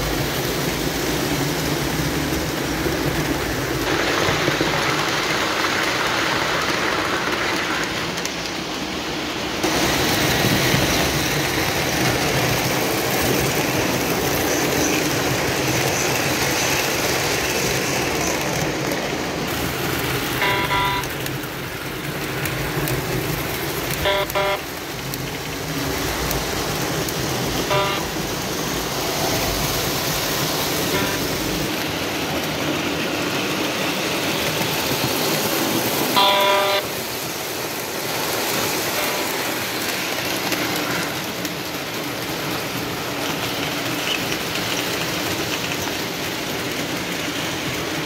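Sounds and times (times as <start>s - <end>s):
model train wheels rumbling on rails: 0.0s - 48.0s
electronic train horn blasts: 20.4s - 21.2s, 24.0s - 24.8s, 27.6s - 28.3s, 30.9s - 31.4s, 36.2s - 37.0s, 38.9s - 39.5s.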